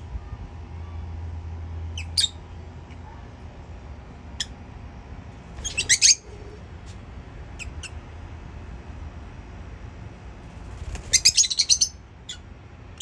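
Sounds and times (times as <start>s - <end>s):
steady low hum: 0.0s - 13.0s
lovebirds chirping: 2.0s - 2.4s, 5.5s - 6.6s, 10.9s - 12.4s.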